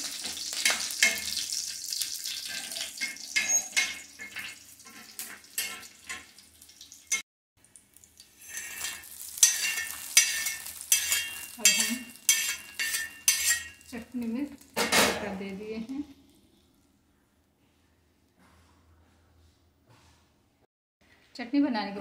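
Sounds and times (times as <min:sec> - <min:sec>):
seeds sizzling in hot oil: 0:00.0 - 0:14.8
steel spoon scraping metal pan: 0:00.1 - 0:06.3, 0:08.4 - 0:13.9.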